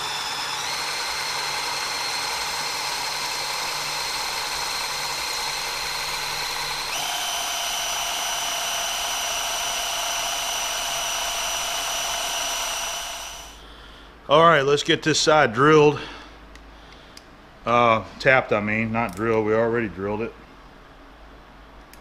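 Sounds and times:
cordless drill drilling into metal: 0.0 - 13.6.

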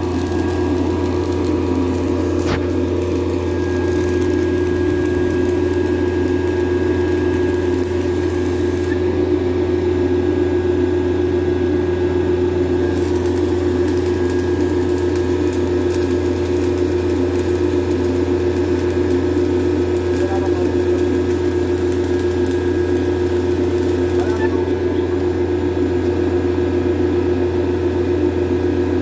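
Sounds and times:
welding arc crackle: 0.0 - 9.0, 12.6 - 25.0
generator engine hum: 0.0 - 28.3.

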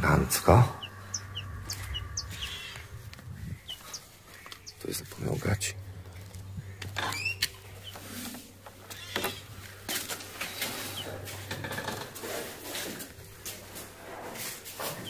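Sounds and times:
steady low hum: 0.0 - 14.7
faint bird chirps: 0.2 - 8.2.

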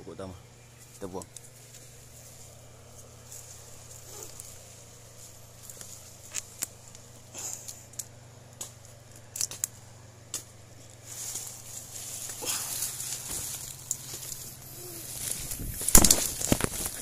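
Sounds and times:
pruning shears snipping wood: 5.6 - 11.6, 12.2 - 17.0.

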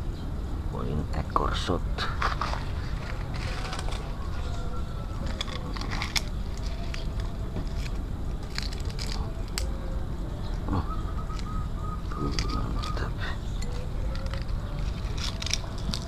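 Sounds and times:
steady low rumble: 0.0 - 16.0
metal shaft clicking and scraping: 2.2 - 9.9, 11.3 - 16.0.

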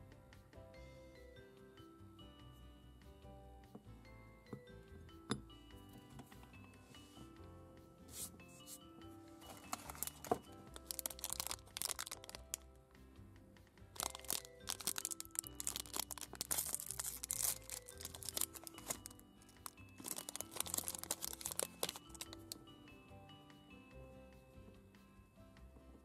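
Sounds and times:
background music: 0.0 - 26.0
foil wrapper crinkling: 9.5 - 12.6, 14.0 - 22.6.

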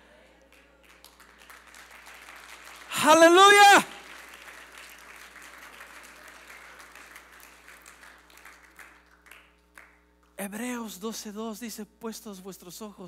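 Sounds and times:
congregation applauding: 0.5 - 10.0.

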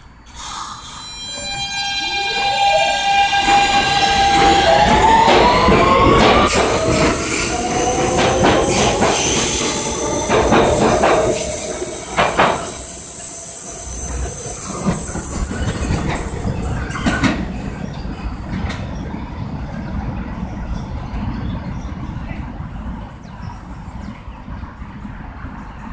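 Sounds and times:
subway train motor whine: 0.0 - 23.1
train running noise: 0.0 - 25.9
wheels clicking over rail joints: 3.3 - 12.7.

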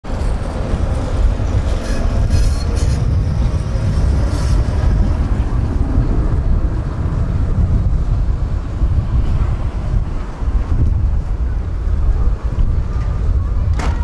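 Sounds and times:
tram rolling on rails: 0.0 - 14.0
wind rumble on microphone: 0.0 - 14.0
tram squeals and clanks: 0.1 - 6.2.

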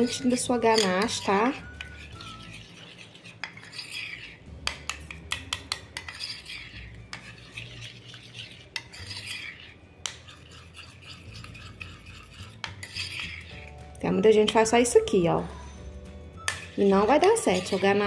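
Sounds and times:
spoon clinking against glass bowl: 0.0 - 2.6, 16.4 - 18.0
spoon scraping bowl sides: 0.0 - 15.3, 16.4 - 18.0
metal spoon stirring ganache: 0.0 - 18.0.

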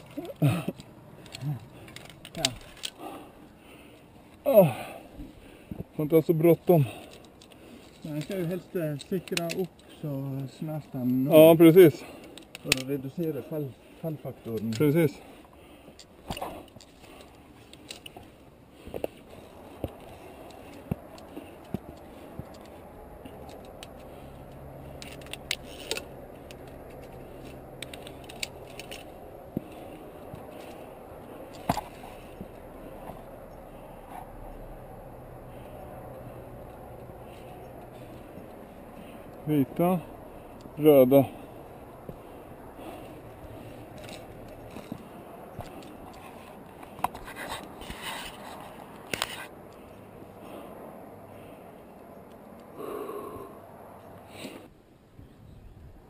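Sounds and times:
carabiners clicking on steel cable: 0.0 - 3.2, 6.7 - 13.6, 14.4 - 15.2, 15.8 - 19.2, 19.8 - 32.6, 42.8 - 50.0
gear scraping: 16.0 - 34.6.

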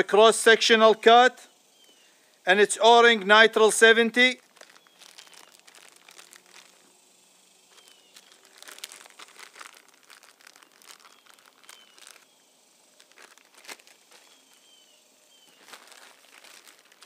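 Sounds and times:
plastic bag crinkling: 4.4 - 6.9, 7.7 - 14.8, 15.4 - 17.0.

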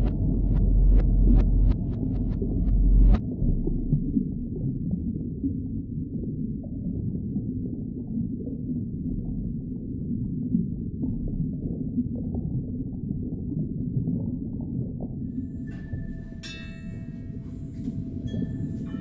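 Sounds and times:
low muffled rumbling drone: 0.0 - 6.7.

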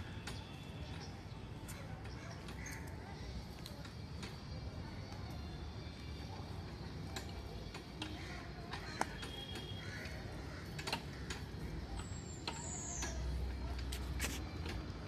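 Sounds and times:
gym machine pivots clicking: 6.4 - 15.0.

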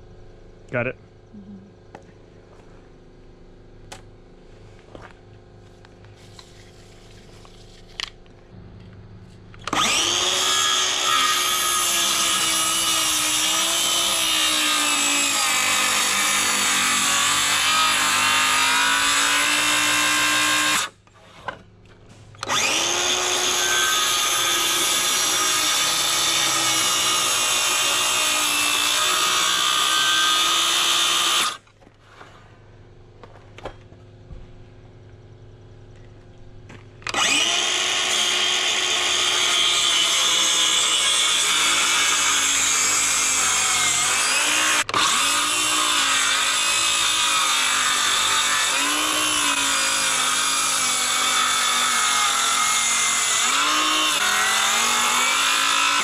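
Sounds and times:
circular saw cutting wood: 9.6 - 21.5, 22.4 - 31.6, 37.0 - 56.0.

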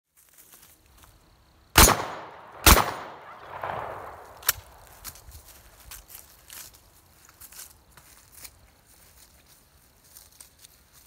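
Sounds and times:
shotgun shots echoing: 1.8 - 4.9.

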